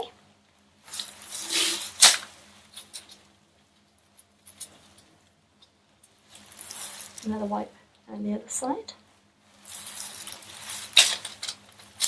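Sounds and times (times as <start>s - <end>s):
rustle of paper drape: 0.9s - 2.3s, 6.2s - 7.4s, 9.5s - 12.0s.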